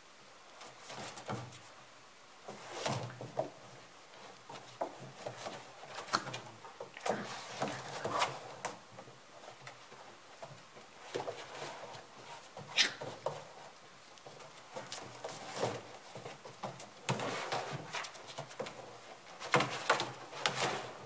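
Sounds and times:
paws scrabbling on plastic: 2.4 - 21.0
puppies knocking on plastic tunnel: 2.4 - 21.0.

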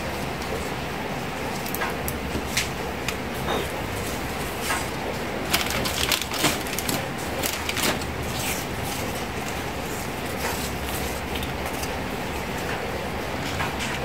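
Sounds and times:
paper and plastic crinkling: 3.9 - 12.8.

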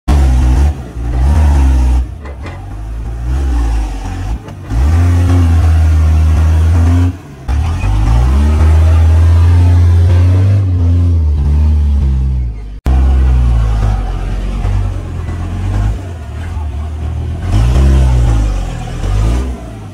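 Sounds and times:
diesel engine revving: 0.1 - 19.9.

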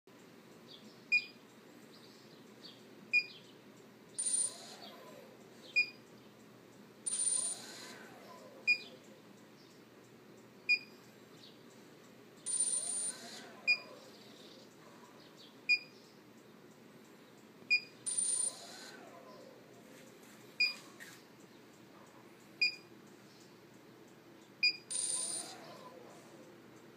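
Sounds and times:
short high beeps: 7.1 - 7.9, 24.6 - 25.5.

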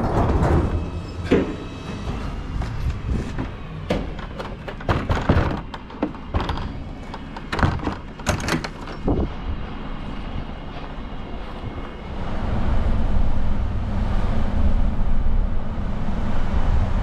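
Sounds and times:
wooden doors knocking and thudding: 0.0 - 9.3
steady low rumble: 0.0 - 17.0.

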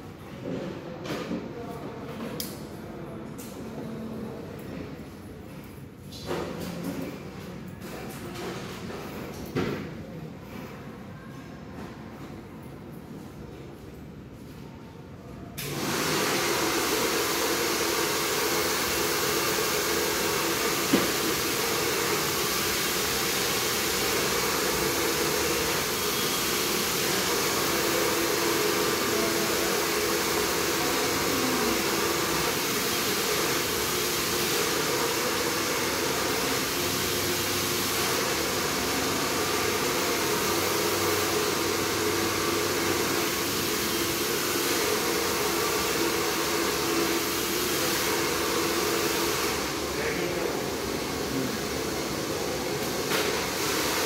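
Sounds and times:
hair dryer blowing: 15.6 - 54.0.

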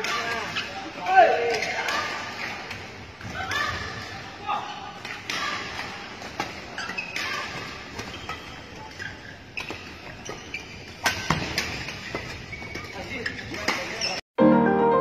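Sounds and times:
shoe squeaks on court: 6.7 - 7.4, 8.0 - 14.2.

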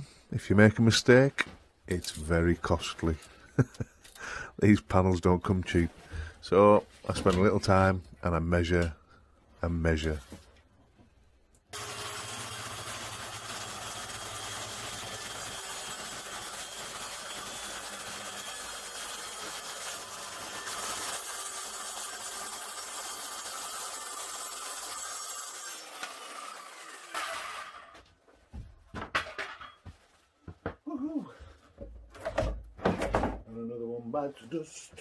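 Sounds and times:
saw blade winding down: 11.7 - 28.0
circular saw cutting board: 11.7 - 28.1.

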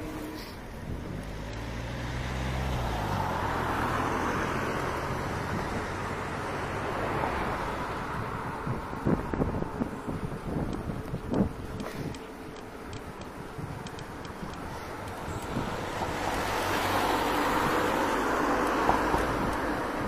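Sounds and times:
car passing by: 0.0 - 9.6, 14.7 - 20.0
street noise: 0.0 - 20.0.

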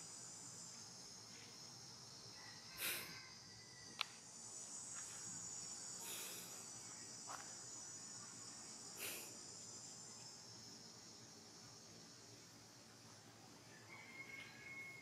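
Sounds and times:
high-pitched insect chorus trilling: 0.0 - 15.0.

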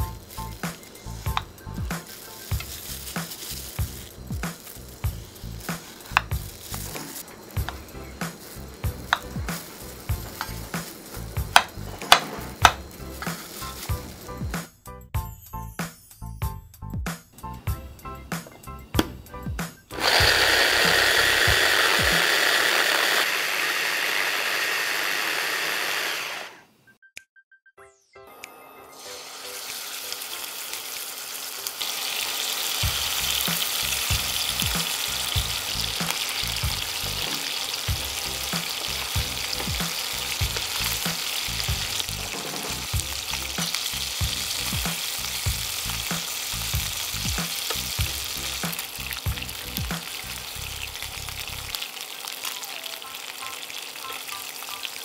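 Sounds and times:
electric chopper running: 0.0 - 14.6, 19.8 - 26.7, 32.7 - 50.8
chicken sizzling in oil: 0.0 - 14.8, 17.5 - 26.6, 28.6 - 55.0
background music with steady beat: 0.0 - 22.3, 32.8 - 50.8.

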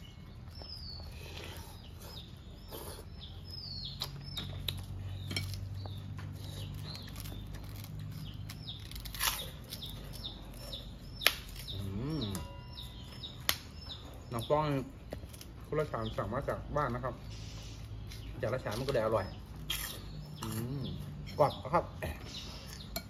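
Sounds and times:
small birds chirping: 0.0 - 23.0
crunching crisp crackers: 3.8 - 12.3.

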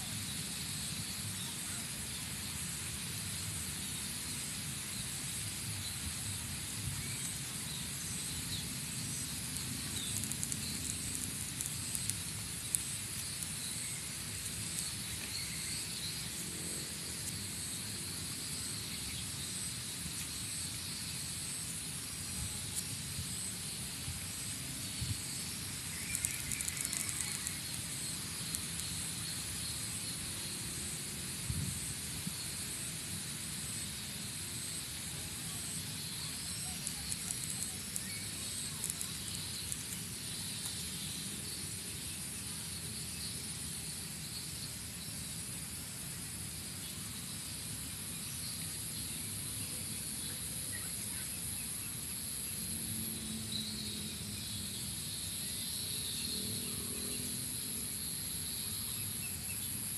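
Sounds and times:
high hiss: 0.0 - 59.9
faint clicks: 9.6 - 13.6, 26.0 - 27.6, 36.6 - 40.0.

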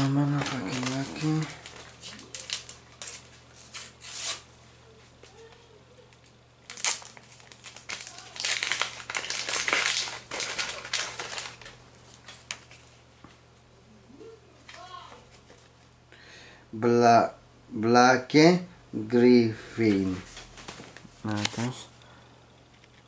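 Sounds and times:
wrapper crinkling: 0.0 - 4.4, 6.2 - 13.0
foil packet tearing: 0.0 - 4.5, 6.6 - 12.8.

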